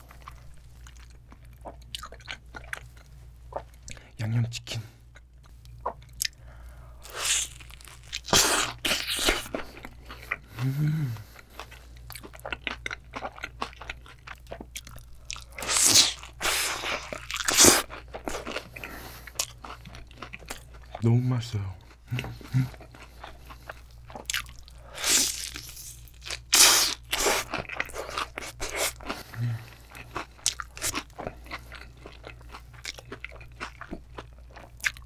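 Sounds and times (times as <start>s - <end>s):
crispy fried chicken crunching: 7.0s - 10.4s, 11.7s - 35.0s
chewing: 7.1s - 21.0s, 21.8s - 26.4s, 27.0s - 35.0s.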